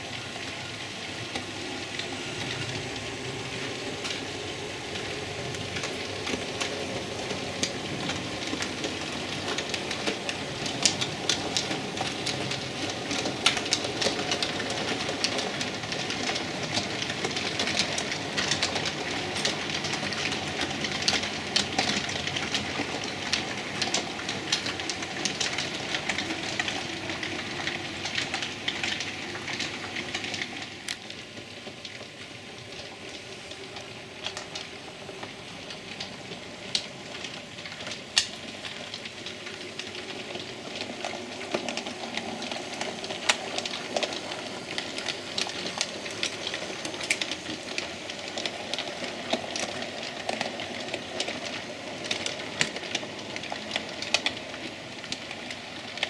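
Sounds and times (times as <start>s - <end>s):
model trains rolling rumble: 0.0s - 56.0s
wheels clicking on rail: 0.0s - 56.0s.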